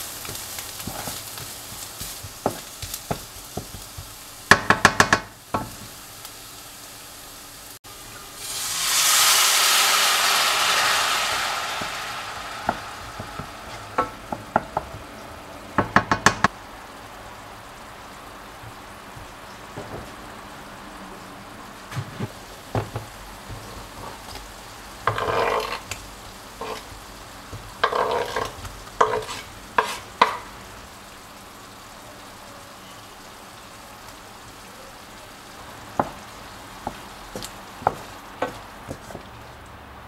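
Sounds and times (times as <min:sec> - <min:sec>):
tomatoes scraped into pan: 0:00.0 - 0:04.3, 0:23.4 - 0:30.5
onions sizzling in a frying pan: 0:00.0 - 0:40.0
wooden spoon knocking against pan: 0:02.0 - 0:05.8, 0:12.6 - 0:15.1, 0:15.8 - 0:16.5, 0:22.0 - 0:23.7, 0:29.8 - 0:30.5, 0:36.0 - 0:36.2, 0:36.8 - 0:39.2.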